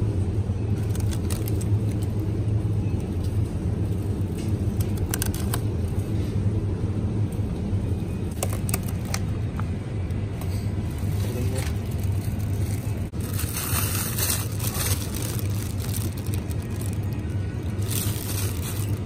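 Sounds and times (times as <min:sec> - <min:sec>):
supermarket background rumble: 0:00.0 - 0:19.0
produce packs clicking and crackling: 0:00.8 - 0:02.2, 0:04.4 - 0:05.7, 0:08.3 - 0:09.3, 0:11.0 - 0:19.0.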